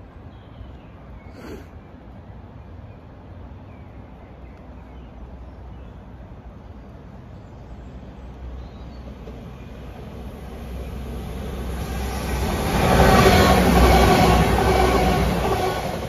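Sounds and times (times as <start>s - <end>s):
diesel train passing: 1.9s - 16.0s
train wheels on rails: 8.4s - 16.0s.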